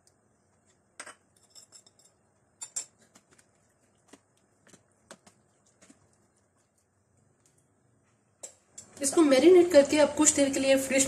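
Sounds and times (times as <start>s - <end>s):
spoon clicking and scraping tub: 0.0s - 7.6s.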